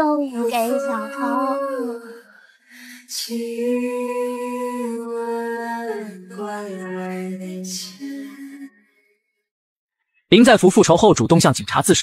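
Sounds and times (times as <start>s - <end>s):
woman singing unaccompanied: 0.0s - 8.8s.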